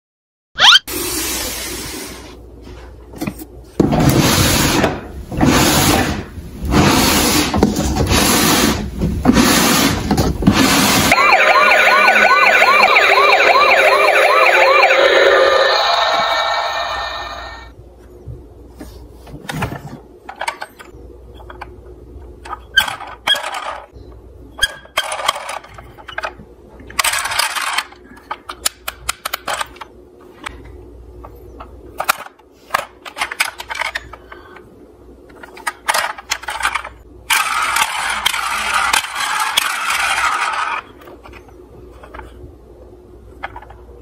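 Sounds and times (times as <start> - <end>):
plastic toy cars clattering: 24.6 - 30.6, 31.6 - 34.7, 35.3 - 42.4, 43.3 - 44.0.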